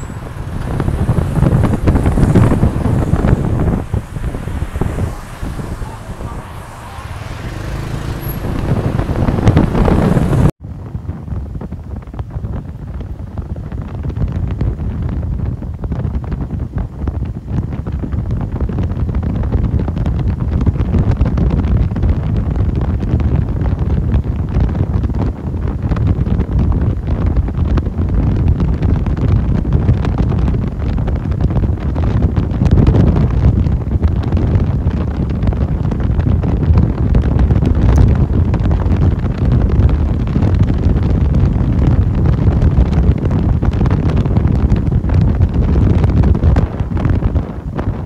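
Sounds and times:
street traffic: 0:00.0 - 0:10.6, 0:26.9 - 0:48.0
wind rumbling on microphone: 0:00.0 - 0:48.0.

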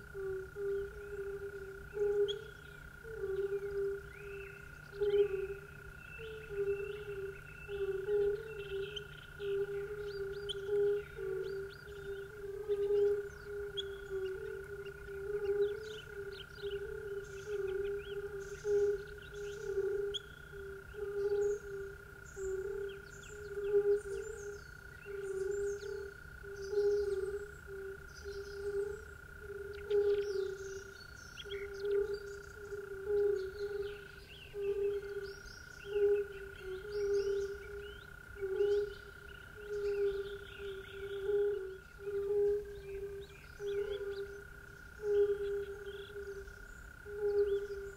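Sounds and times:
frogs croaking in chorus: 0:00.0 - 0:47.9.

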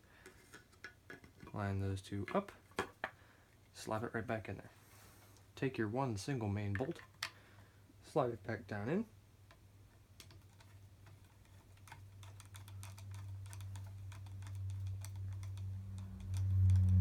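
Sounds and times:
low hum: 0:13.3 - 0:17.0.

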